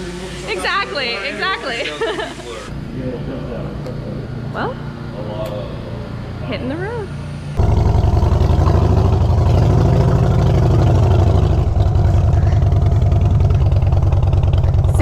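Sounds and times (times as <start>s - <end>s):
motorcycle engine pulling away: 7.6s - 15.0s.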